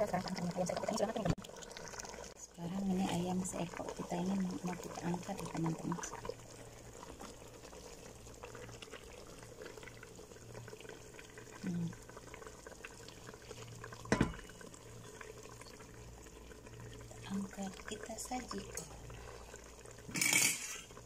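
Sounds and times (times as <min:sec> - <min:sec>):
sauce bubbling and crackling: 0:00.0 - 0:21.0
utensil knocking on pot: 0:14.1 - 0:14.4.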